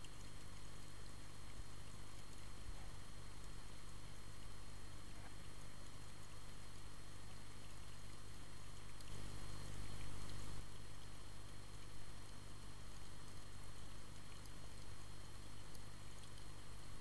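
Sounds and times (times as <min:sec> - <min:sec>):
faint hiss: 0:00.0 - 0:11.4.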